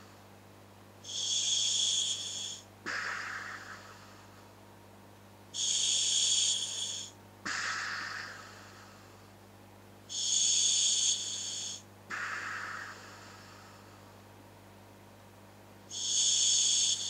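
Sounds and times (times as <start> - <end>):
breathing through regulator hiss: 1.0 - 4.6, 5.5 - 9.4, 10.1 - 14.2, 15.9 - 17.0
exhale: 1.0 - 4.6, 5.6 - 9.4, 10.1 - 14.2, 15.9 - 17.0.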